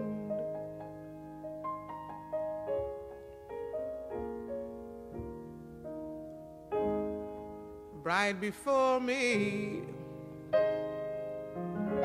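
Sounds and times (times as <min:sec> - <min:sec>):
person singing ballad: 0:00.0 - 0:01.0, 0:08.0 - 0:10.2
slow piano notes and chords: 0:00.0 - 0:12.0.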